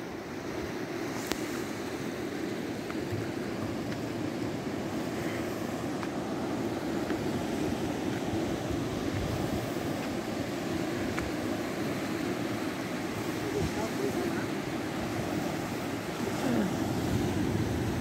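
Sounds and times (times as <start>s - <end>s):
ocean surf breaking on rocks: 0.0s - 18.0s
wind on microphone: 4.8s - 18.0s.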